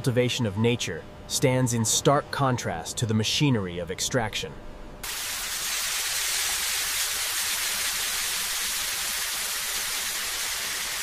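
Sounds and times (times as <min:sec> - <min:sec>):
steady hissing noise: 0:05.0 - 0:11.0.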